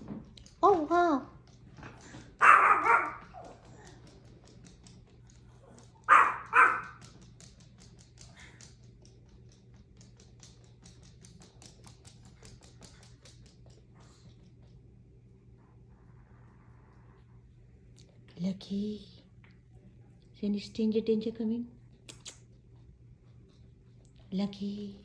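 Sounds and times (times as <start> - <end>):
dog claws clicking on wooden floor: 0.0 - 14.8
small dog barking: 2.4 - 3.5, 6.1 - 7.0.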